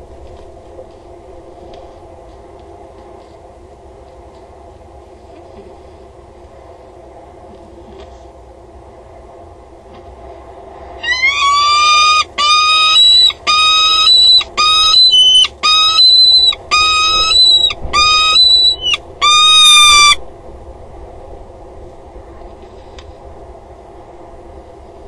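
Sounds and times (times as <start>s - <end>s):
falcon calling: 11.0s - 20.2s.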